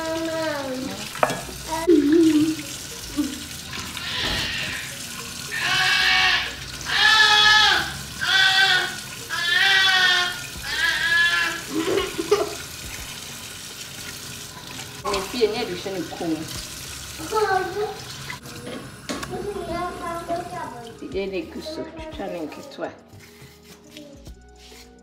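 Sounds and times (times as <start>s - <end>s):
tap running into steel sink: 1.2s - 1.6s, 18.6s - 19.4s
goat bleating: 5.5s - 11.6s.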